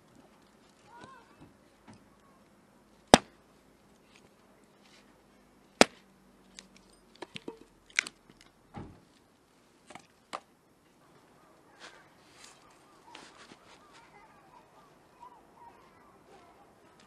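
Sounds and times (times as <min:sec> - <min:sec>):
hatchet chopping firewood: 0:03.1 - 0:03.4, 0:05.8 - 0:06.0, 0:07.2 - 0:08.4
wood pieces knocking and clattering: 0:06.8 - 0:08.5.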